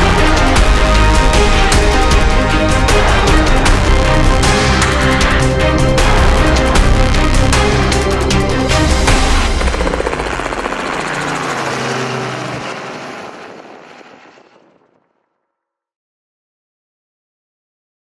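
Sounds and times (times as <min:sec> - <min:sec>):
background music: 0:00.0 - 0:12.4
helicopter rotor chopping: 0:00.0 - 0:15.2.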